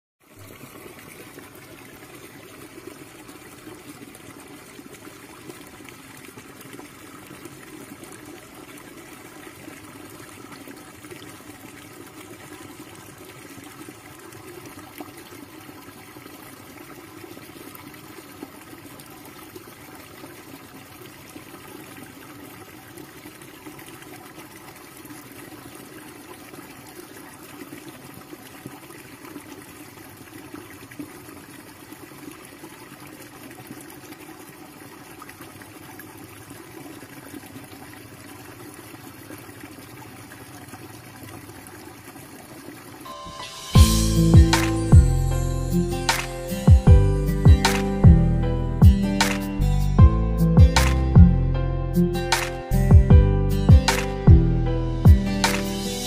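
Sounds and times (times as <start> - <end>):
trickling running water: 0.2 - 43.1.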